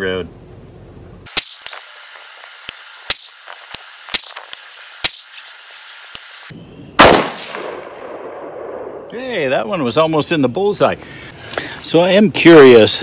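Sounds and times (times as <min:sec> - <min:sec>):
rifle shot with echo: 0:07.0 - 0:09.1.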